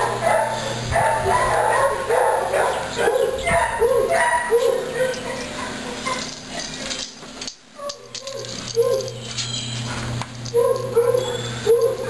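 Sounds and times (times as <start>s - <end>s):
steady low hum: 0.0s - 12.0s
dog yipping: 0.2s - 6.4s, 7.8s - 9.5s, 10.5s - 12.0s.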